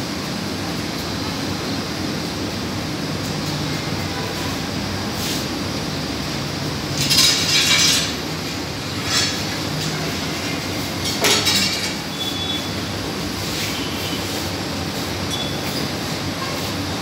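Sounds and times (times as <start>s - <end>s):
oven burner rumble: 0.0s - 17.0s
metal peels scraping on pebbles: 6.9s - 12.0s.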